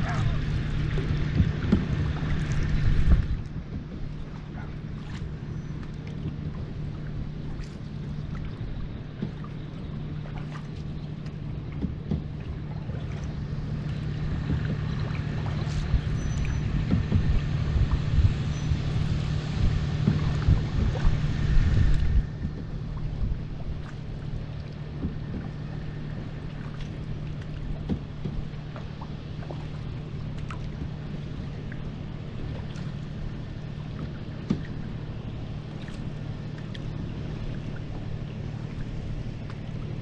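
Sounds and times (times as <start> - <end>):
wind on microphone: 0.0 - 10.6, 11.8 - 28.7
steady low hum: 0.0 - 40.0
water washing against hull: 0.0 - 40.0.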